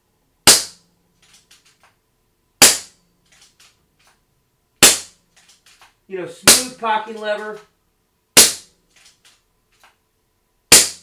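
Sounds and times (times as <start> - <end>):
silenced air rifle shots: 0.5 - 1.8, 2.6 - 3.8, 4.8 - 5.8, 6.5 - 7.3, 8.4 - 9.4, 10.7 - 11.0.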